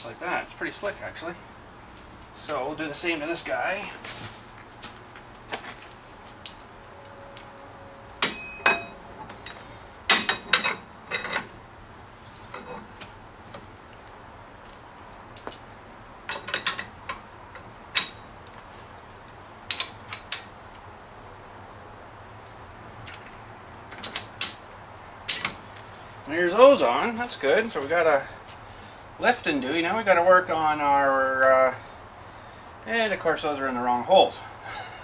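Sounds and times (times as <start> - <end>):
metal hitch parts clinking: 1.9 - 3.8, 5.6 - 11.6, 12.4 - 13.0, 14.6 - 20.6, 23.0 - 26.6.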